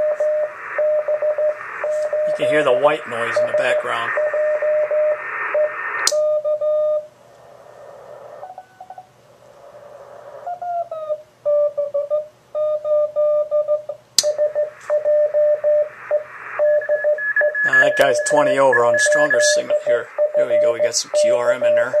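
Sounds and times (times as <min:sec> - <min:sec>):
morse code tone beeping: 0:00.0 - 0:07.0, 0:12.7 - 0:22.0
radio background hiss: 0:00.0 - 0:12.3, 0:14.0 - 0:22.0.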